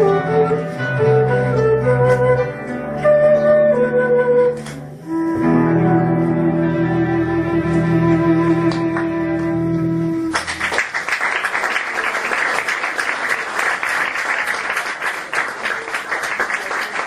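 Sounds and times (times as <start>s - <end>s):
cello and double bass chord: 4.0s - 10.4s
audience applause: 10.3s - 17.0s.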